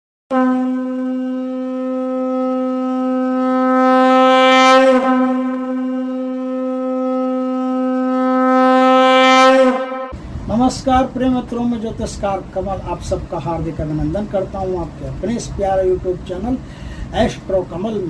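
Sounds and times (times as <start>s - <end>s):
conch shell blasts: 0.3s - 10.2s.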